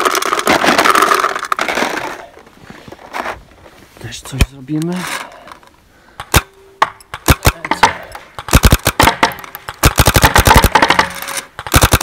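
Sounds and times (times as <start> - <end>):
paintball marker shots: 6.2 - 12.0.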